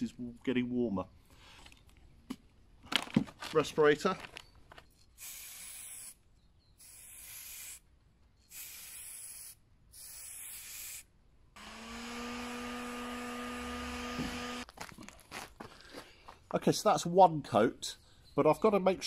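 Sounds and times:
spray paint can hissing: 0:05.2 - 0:06.2, 0:06.8 - 0:07.8, 0:08.5 - 0:11.1.

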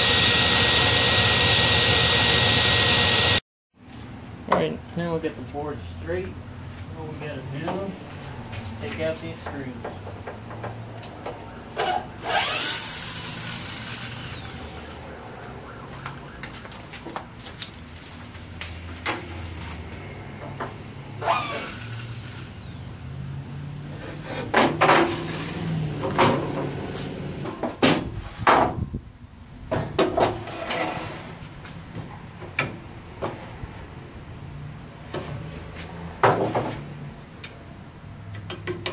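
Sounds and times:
cordless drill motor whining: 0:00.0 - 0:03.4, 0:12.2 - 0:15.0, 0:21.2 - 0:22.8
wooden boards knocking and scraping: 0:24.3 - 0:25.4, 0:36.2 - 0:36.8.

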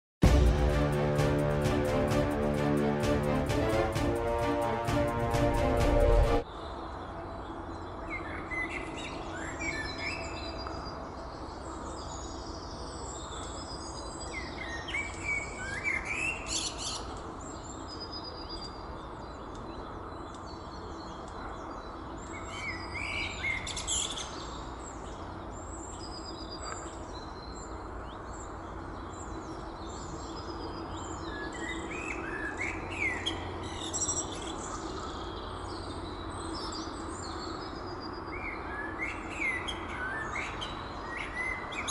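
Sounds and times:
blackbird singing: 0:29.0 - 0:41.9.

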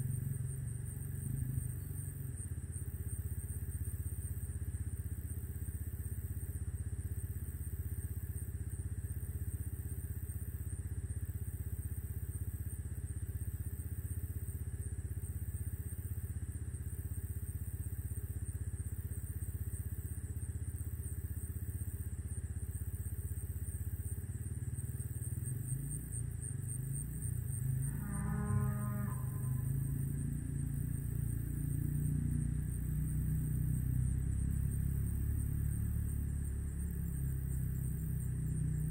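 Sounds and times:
cow mooing: 0:27.8 - 0:29.9.

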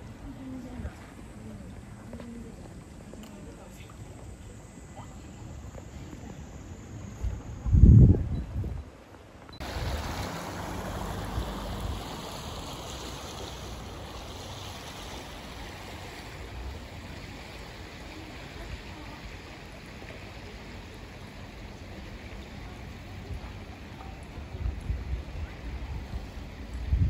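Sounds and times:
stream water rushing over stones: 0:09.6 - 0:27.0.

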